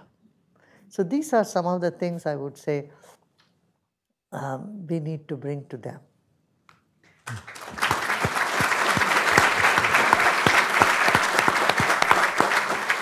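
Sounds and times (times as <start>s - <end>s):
people applauding: 7.2s - 13.0s.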